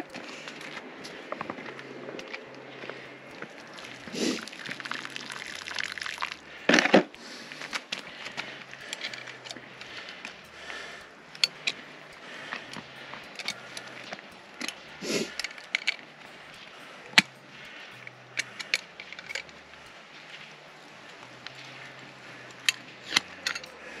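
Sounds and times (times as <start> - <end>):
crunching frozen ground: 0.0 - 24.0
metallic clicks of pliers: 7.2 - 20.4, 21.0 - 24.0.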